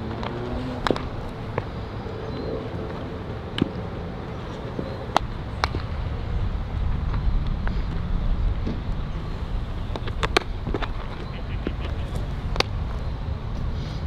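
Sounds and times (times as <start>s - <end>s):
steady low rumble: 0.0s - 14.0s
baseballs popping into leather gloves: 9.9s - 12.8s.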